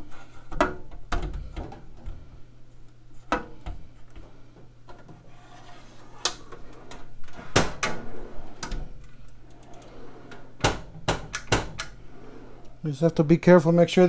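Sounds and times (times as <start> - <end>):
metal drawer sliding: 5.1 - 12.9
drawer clicks and knocks: 10.6 - 12.0.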